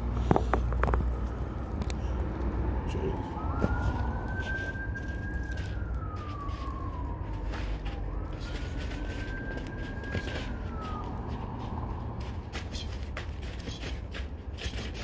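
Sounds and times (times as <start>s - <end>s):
steady low rumble: 0.0s - 14.7s
siren wailing: 0.8s - 13.2s.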